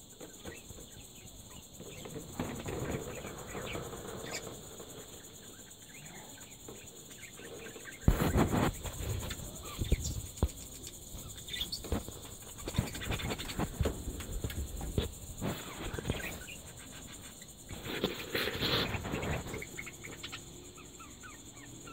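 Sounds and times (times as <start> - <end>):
rustling and bumps: 0.2 - 5.9, 6.5 - 20.2
budgerigars chirping: 18.8 - 21.9.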